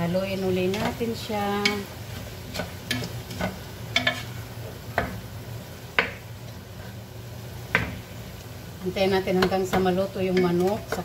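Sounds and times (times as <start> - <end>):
chicken sizzling: 0.0 - 11.0
wooden spoon knocking on pot: 9.3 - 11.0.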